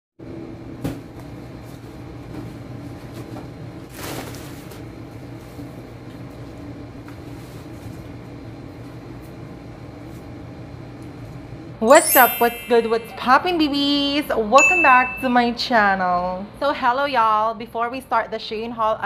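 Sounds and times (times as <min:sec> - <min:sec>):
steady background hum: 0:00.3 - 0:19.0
plastic rustling: 0:03.9 - 0:04.9.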